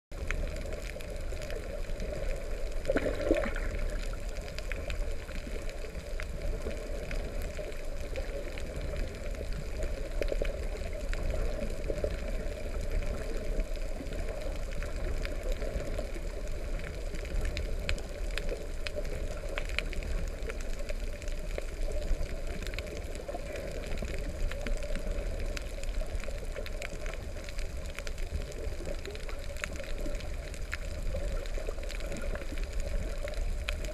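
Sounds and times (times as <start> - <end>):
muffled underwater rush: 0.1 - 33.9
faint clicks: 0.2 - 33.9
burst of water noise: 2.8 - 4.2.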